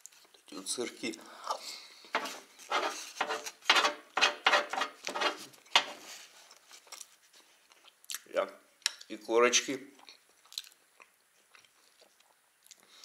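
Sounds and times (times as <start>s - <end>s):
fork scraping baking tray: 2.2s - 6.2s.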